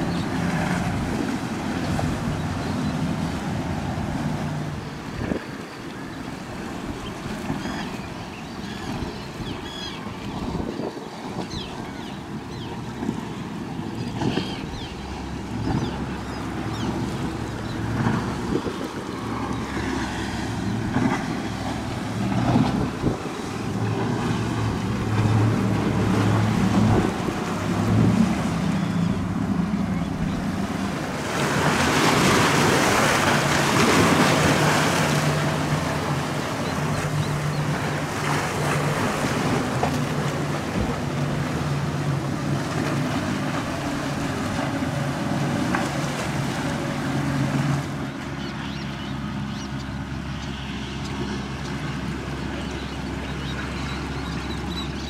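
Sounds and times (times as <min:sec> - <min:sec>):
wind on microphone: 0:00.0 - 0:05.6, 0:08.8 - 0:12.0, 0:13.9 - 0:36.0
outboard boat engines droning: 0:00.0 - 0:55.0
waves and spray rushing: 0:00.0 - 0:55.0.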